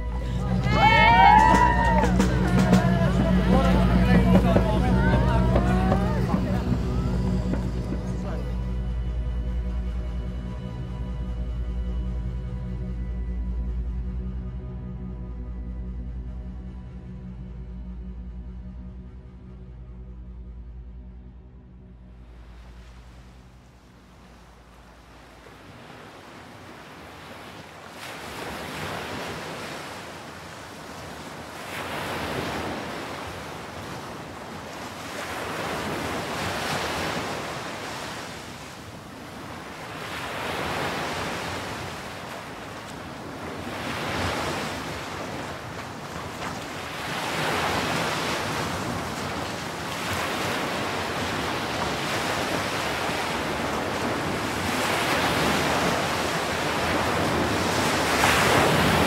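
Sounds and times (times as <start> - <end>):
sea waves washing ashore: 0.0 - 12.6, 22.2 - 59.0.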